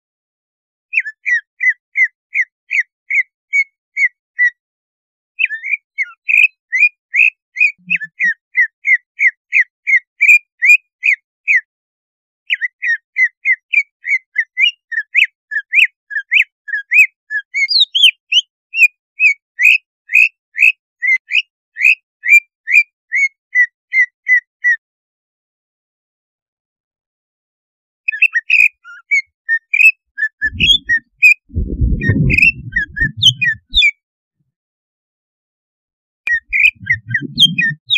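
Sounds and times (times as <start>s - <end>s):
bird singing whistled notes: 5.4s - 11.2s, 12.5s - 19.8s, 28.1s - 33.9s, 36.3s - 37.9s.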